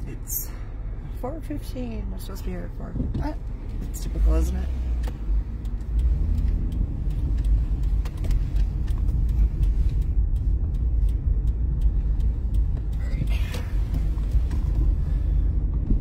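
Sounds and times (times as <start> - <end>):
car engine and road rumble: 0.0 - 16.0.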